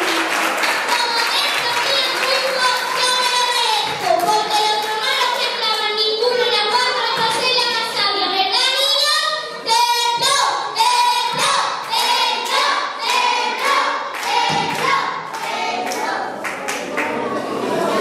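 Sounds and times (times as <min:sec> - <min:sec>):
hands clapping: 0:00.0 - 0:06.5, 0:11.8 - 0:17.2
children singing: 0:09.6 - 0:16.4.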